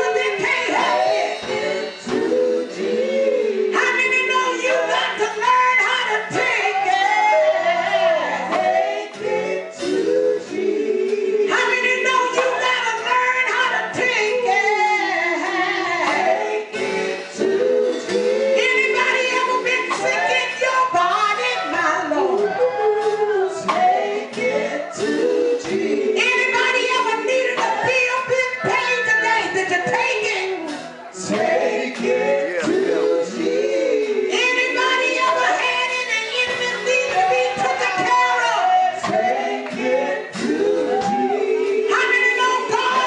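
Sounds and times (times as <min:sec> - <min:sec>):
gospel group singing: 0:00.0 - 0:43.0
keyboard accompaniment: 0:15.4 - 0:43.0.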